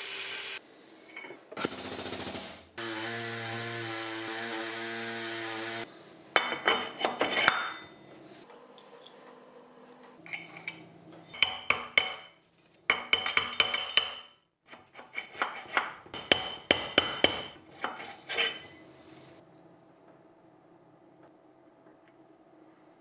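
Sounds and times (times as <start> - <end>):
metallic clinks and scrapes: 8.8 - 11.4.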